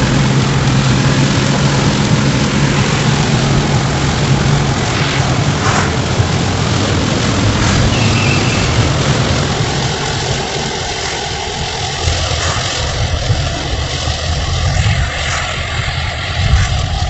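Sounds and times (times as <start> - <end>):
car engine and tyres drone: 0.0 - 17.0
rain hissing on windshield: 0.0 - 17.0.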